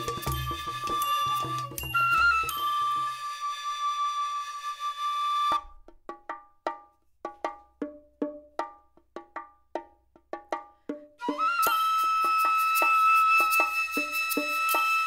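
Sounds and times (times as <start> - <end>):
held flute-like note: 0.0 - 5.7, 11.2 - 15.0.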